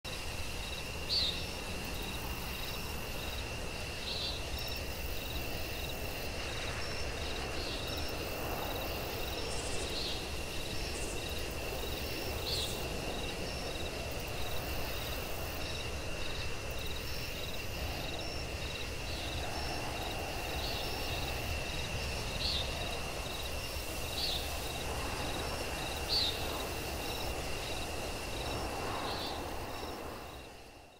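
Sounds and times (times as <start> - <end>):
insects chirping: 0.1 - 30.9
low background hiss: 0.1 - 30.9.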